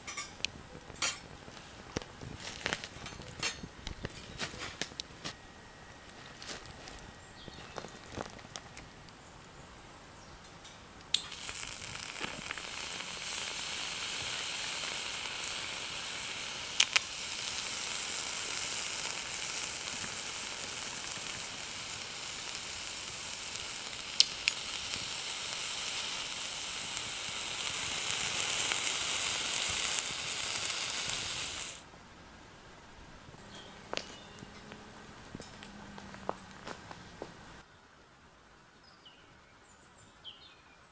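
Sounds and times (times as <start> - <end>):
sausages sizzling on a grate: 1.8 - 5.3, 6.0 - 8.8, 11.1 - 31.9.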